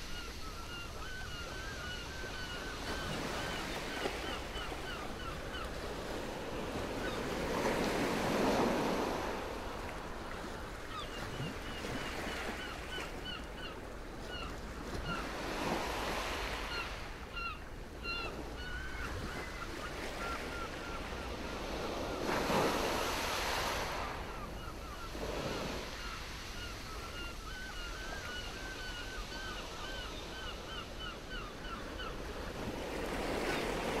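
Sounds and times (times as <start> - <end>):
waterbird calls: 0.0 - 9.2, 10.3 - 34.0.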